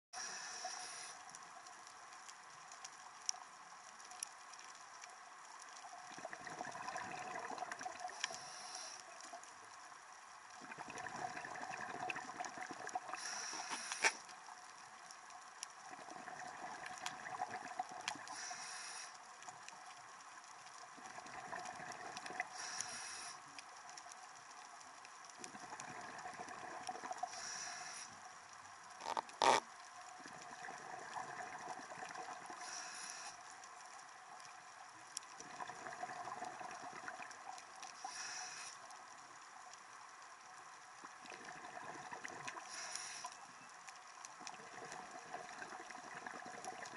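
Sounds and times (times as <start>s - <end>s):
regulator inhale hiss: 0.2s - 1.4s, 8.0s - 9.3s, 13.1s - 14.3s, 18.2s - 19.3s, 22.4s - 23.6s, 27.2s - 28.3s, 32.5s - 33.5s, 37.9s - 39.0s, 42.6s - 43.5s.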